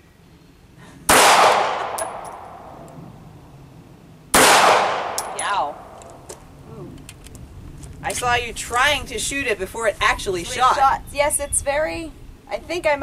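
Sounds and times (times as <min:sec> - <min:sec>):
pistol shots: 0:01.1 - 0:02.8, 0:04.3 - 0:06.0.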